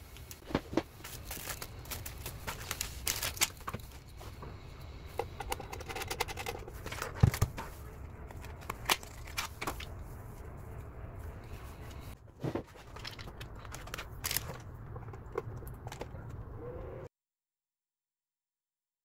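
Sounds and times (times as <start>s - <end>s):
small parts and cardboard handled: 0.0s - 10.6s, 11.2s - 16.5s
plastic bags crinkling: 0.1s - 4.0s, 12.7s - 14.7s.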